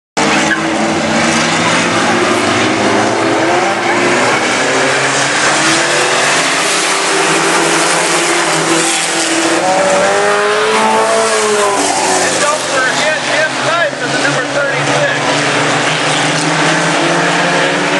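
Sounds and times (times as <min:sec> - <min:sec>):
racing truck engines: 0:00.2 - 0:17.9.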